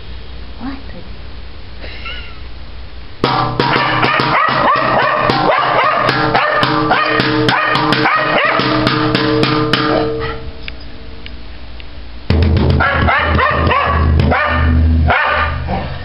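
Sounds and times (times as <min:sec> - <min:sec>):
small dog barking: 0:03.6 - 0:08.8, 0:12.8 - 0:16.0.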